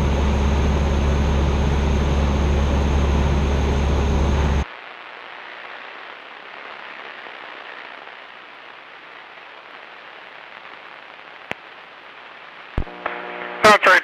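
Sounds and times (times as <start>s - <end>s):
radio intercom hiss: 4.4s - 14.0s.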